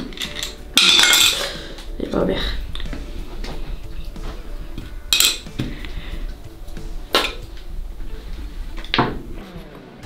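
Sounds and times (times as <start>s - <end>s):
decorations clinking against glass dish: 0.1s - 1.6s, 5.1s - 5.5s.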